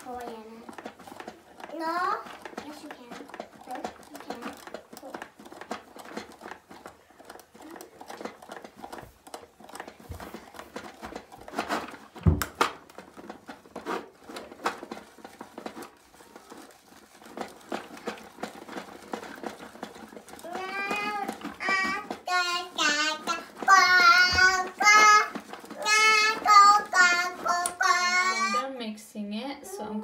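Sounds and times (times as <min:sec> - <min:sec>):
plastic clicking and squishing: 0:00.0 - 0:28.6
thump: 0:12.2 - 0:12.6.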